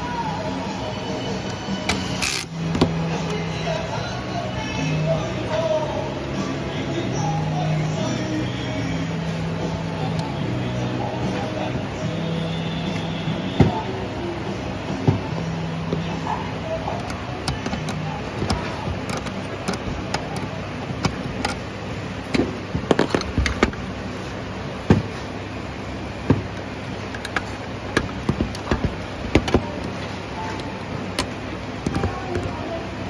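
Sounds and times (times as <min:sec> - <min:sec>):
clicks and knocks of handling: 0:17.0 - 0:21.6, 0:26.3 - 0:32.6.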